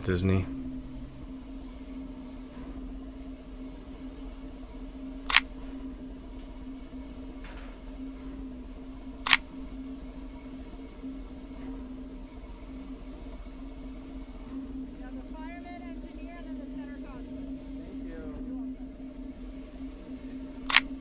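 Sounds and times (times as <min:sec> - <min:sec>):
steady low hum: 0:00.0 - 0:21.0
camera shutter clicks: 0:05.3 - 0:05.8, 0:09.3 - 0:09.6, 0:20.7 - 0:21.0.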